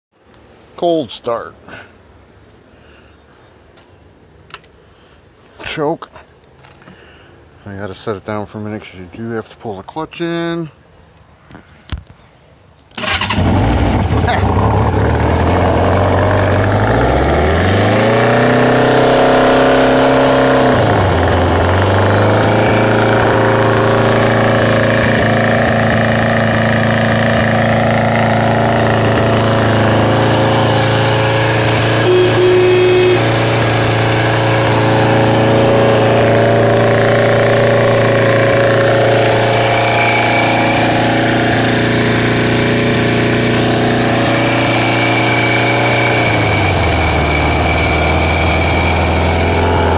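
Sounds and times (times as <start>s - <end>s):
motorcycle engine revving and idling: 13.0s - 49.9s
brief steady tone: 32.0s - 33.5s.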